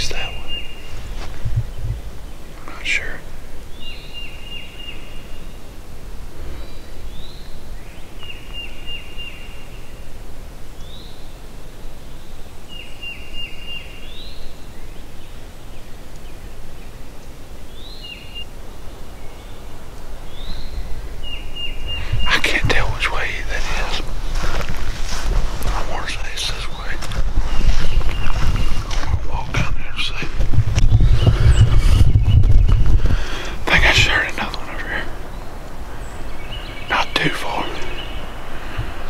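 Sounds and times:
steady low rumble: 0.0 - 3.9, 18.4 - 39.0
songbird singing: 0.0 - 39.0.

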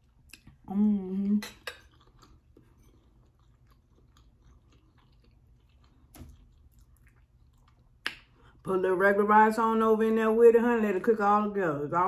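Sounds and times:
soft chewing: 0.0 - 8.7.

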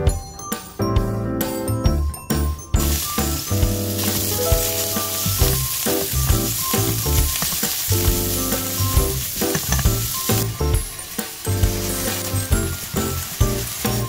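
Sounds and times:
meat sizzling in hot oil: 2.8 - 14.0
spatula scraping taps on pan: 9.4 - 10.0.

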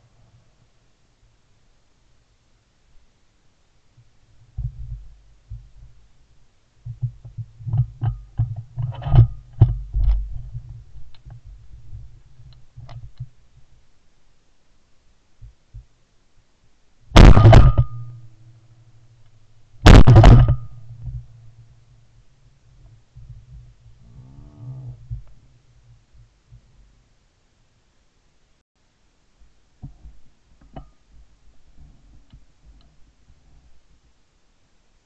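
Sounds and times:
shotgun shots: 17.2 - 18.2, 19.8 - 20.8.

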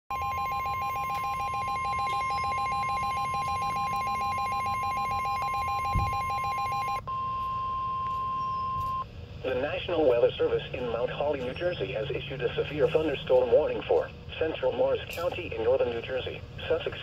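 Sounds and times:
rapid pulsing beep: 0.1 - 9.0
steady high warning tone: 0.1 - 17.0.

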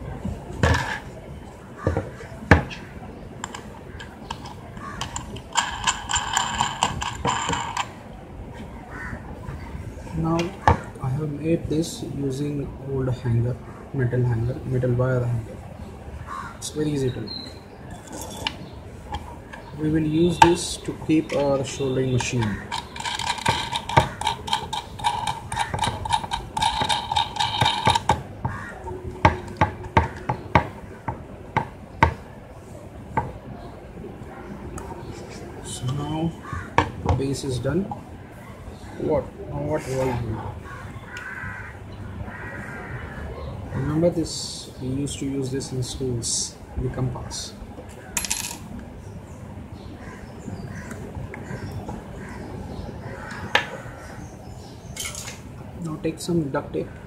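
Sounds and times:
metal nut clicking on a bolt: 3.4 - 7.9, 22.2 - 28.2.

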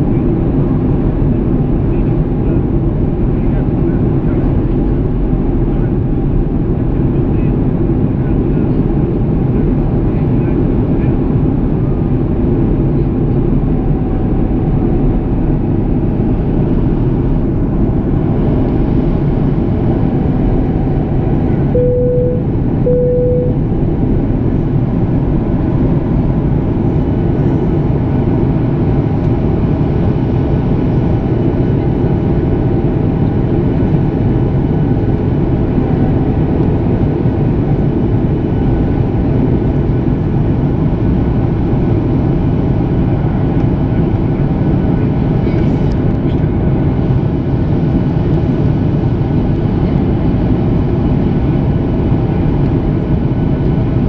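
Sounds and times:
airplane cabin roar: 0.0 - 54.0
short beeps: 21.8 - 23.6.

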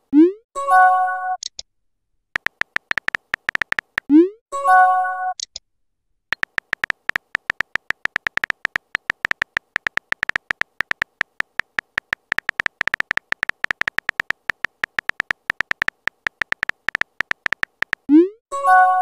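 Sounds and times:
keyboard typing clicks: 2.4 - 4.1, 6.3 - 18.1.

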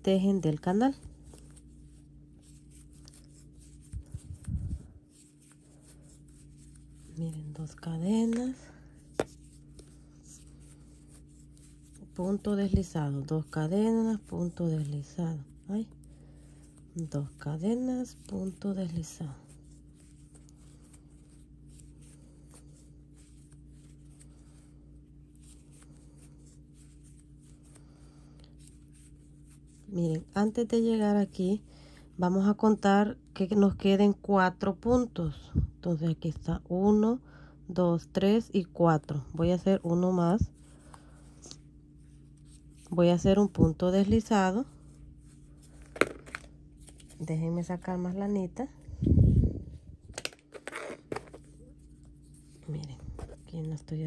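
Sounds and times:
crochet hook and yarn rustling: 0.0 - 27.8, 28.4 - 31.6, 39.0 - 48.4
low hum: 0.0 - 33.9, 38.2 - 54.0.

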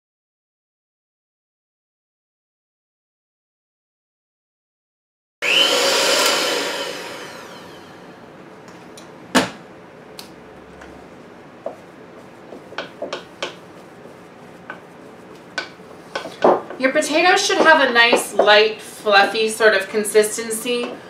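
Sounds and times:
electric hand mixer running: 5.4 - 8.2.

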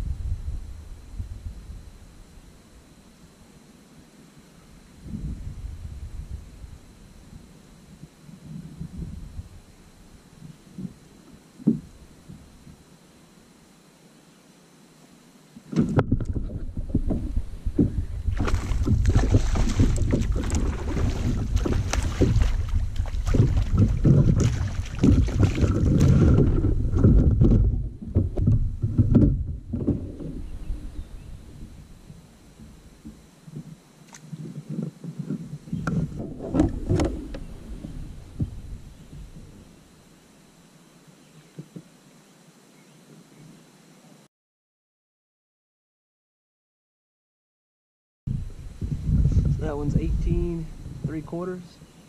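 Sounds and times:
wind rumble on microphone: 0.0 - 2.9, 4.7 - 12.9, 15.7 - 40.0, 48.3 - 51.8
water splashing against kayak: 15.7 - 39.8
fish thrashing at surface: 18.3 - 27.7
knocks on kayak hull: 35.8 - 38.6.

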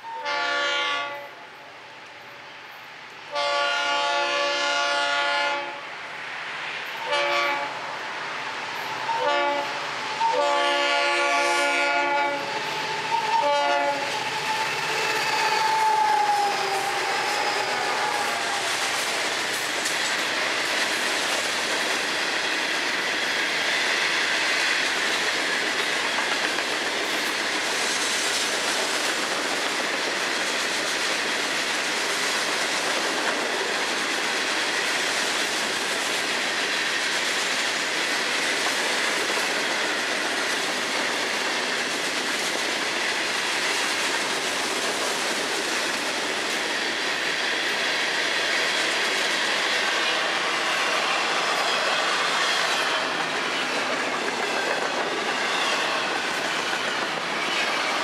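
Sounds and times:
locomotive air horn blasts: 0.0 - 1.4, 3.3 - 5.8, 7.0 - 7.7, 9.1 - 12.5, 13.2 - 14.2
train wheels rumbling over rails: 2.8 - 58.0.

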